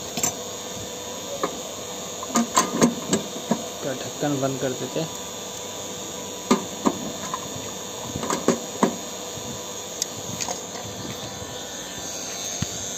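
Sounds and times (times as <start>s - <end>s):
steady background noise: 0.0s - 12.9s.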